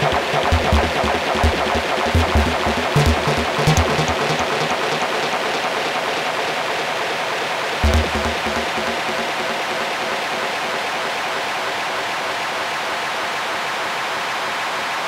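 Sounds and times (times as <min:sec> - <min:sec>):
low bass note: 0:00.0 - 0:06.6, 0:07.8 - 0:10.0.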